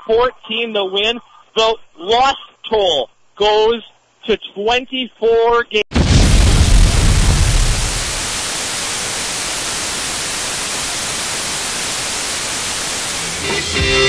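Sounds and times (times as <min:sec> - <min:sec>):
radio static hiss: 0:00.0 - 0:04.7, 0:05.9 - 0:14.0
explosion with deep rumble: 0:05.9 - 0:08.5.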